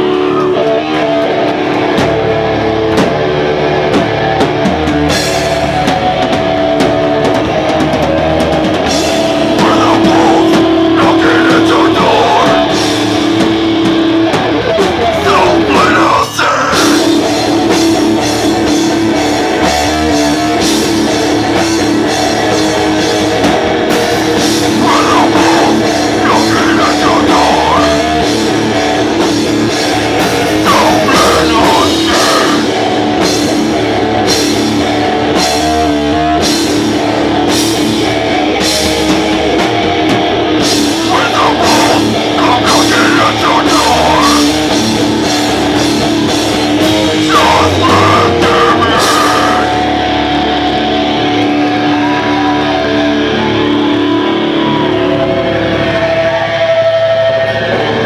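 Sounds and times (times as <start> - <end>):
heavy rock band playing: 0.0 - 58.0
person singing: 9.4 - 12.8, 15.0 - 17.2, 24.6 - 28.3, 30.5 - 32.8, 41.0 - 44.7, 47.2 - 50.0.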